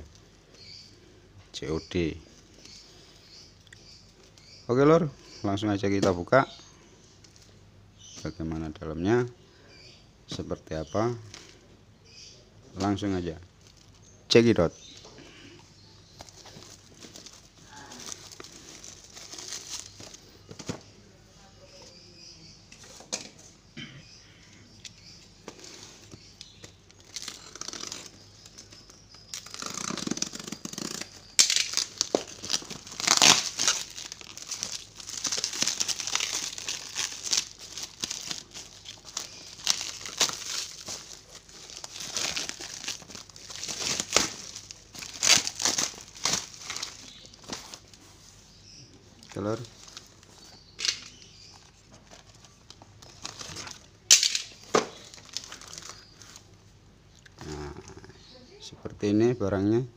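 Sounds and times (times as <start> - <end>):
plastic wrap crinkling and tearing: 16.0 - 20.3, 25.6 - 48.1, 49.4 - 56.5.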